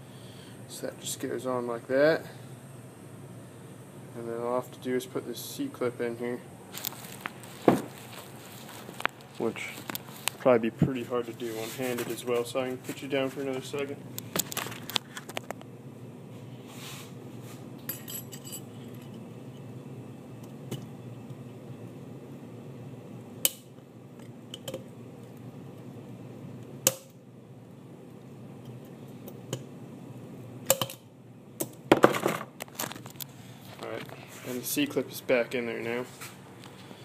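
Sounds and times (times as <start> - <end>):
steady low hum: 0.0 - 37.0
small metal clinks and scrapes: 17.9 - 19.2.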